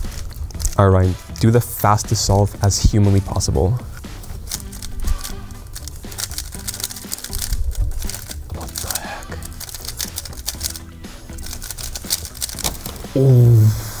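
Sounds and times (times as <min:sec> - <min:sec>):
puzzle cube plastic clicks: 0:00.0 - 0:01.5, 0:04.0 - 0:13.0
background music: 0:00.0 - 0:14.0.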